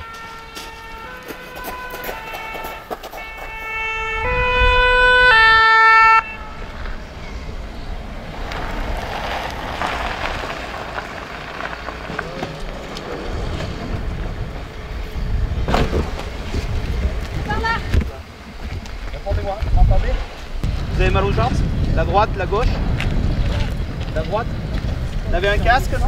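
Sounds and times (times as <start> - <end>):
two-tone siren: 0.0 - 6.8
vehicle engine and tyres rumbling: 0.0 - 26.0.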